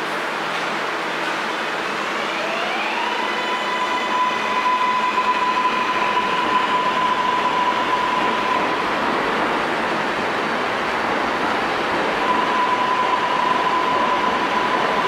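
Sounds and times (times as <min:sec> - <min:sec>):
electric train motor whine: 0:02.0 - 0:09.5, 0:12.1 - 0:15.0.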